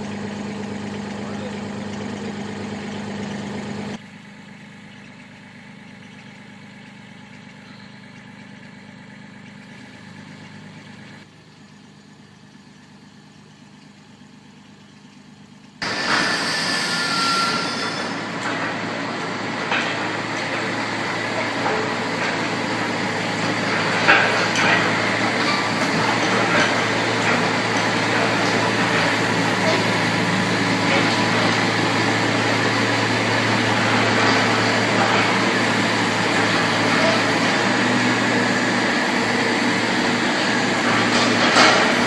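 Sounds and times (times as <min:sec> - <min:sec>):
excavator diesel engine running: 0:00.0 - 0:11.4, 0:15.8 - 0:42.0
excavator arm clanking: 0:15.8 - 0:38.6.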